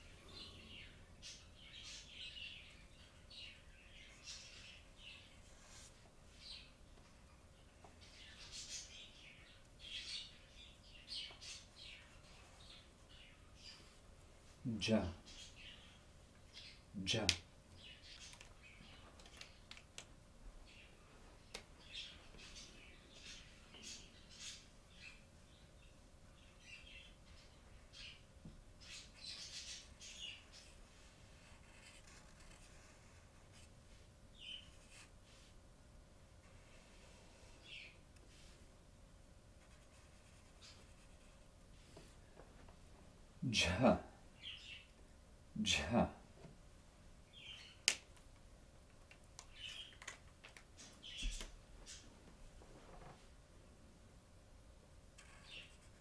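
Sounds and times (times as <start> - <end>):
marker squeaking on paper: 31.4 - 33.7, 39.6 - 41.4, 55.2 - 56.0.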